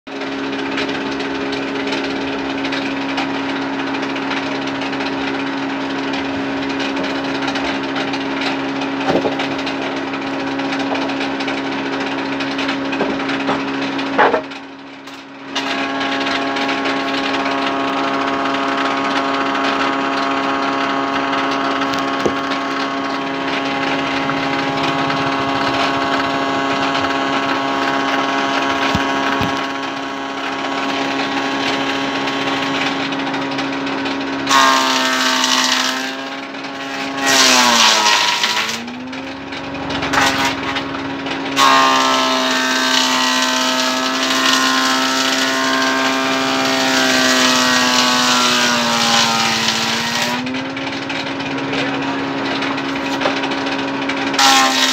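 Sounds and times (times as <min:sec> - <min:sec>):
band saw machinery humming: 0:00.1 - 0:54.9
higher whine: 0:15.1 - 0:34.6, 0:36.3 - 0:42.0, 0:50.4 - 0:54.4.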